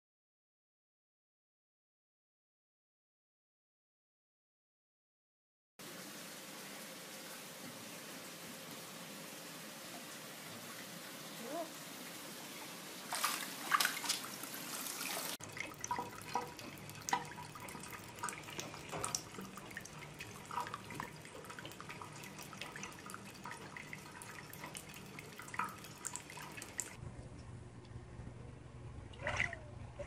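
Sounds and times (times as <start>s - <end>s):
water splashing and sloshing: 5.8s - 27.0s, 29.0s - 30.0s
water dripping into basin: 15.4s - 27.0s
low hum: 27.0s - 30.0s.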